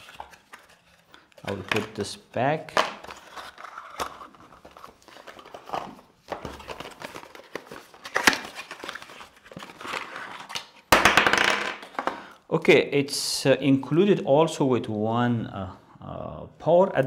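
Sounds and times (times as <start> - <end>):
packaging rustling: 0.0 - 2.0, 2.9 - 10.9.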